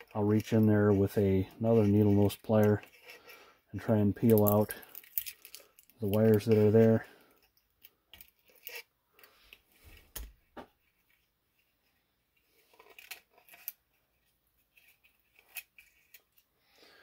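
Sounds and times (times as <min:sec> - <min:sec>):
clicks of small parts handled: 0:04.1 - 0:10.3, 0:12.6 - 0:13.9, 0:14.6 - 0:16.5.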